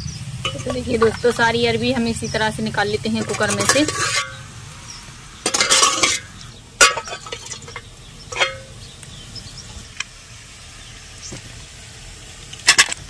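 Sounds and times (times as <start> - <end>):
steel spoon scraping: 0.4 - 1.4, 3.2 - 4.5, 5.4 - 8.8
ringing metal clink: 5.5 - 8.8.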